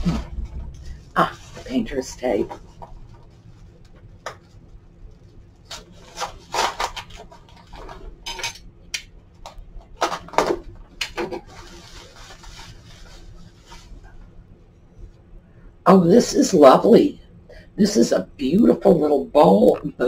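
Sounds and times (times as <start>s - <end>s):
bubble wrap crackling: 0.0s - 8.2s, 11.4s - 14.2s
plastic rustling: 0.0s - 8.3s, 9.3s - 14.4s.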